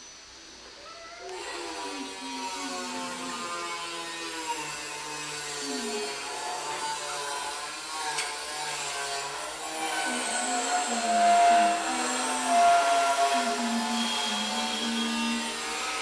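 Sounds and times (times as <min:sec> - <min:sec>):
woman humming: 0:09.9 - 0:15.6.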